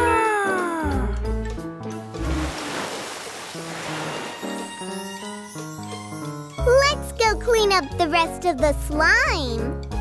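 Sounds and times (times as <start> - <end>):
water spray sound effect: 2.2 - 4.6
cartoon music with bass line: 4.4 - 10.0.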